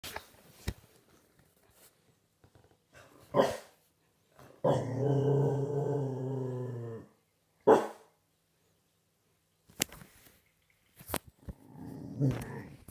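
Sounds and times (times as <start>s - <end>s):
puppy growling low: 4.6s - 7.2s, 11.5s - 12.9s
puppy barking: 7.7s - 8.1s.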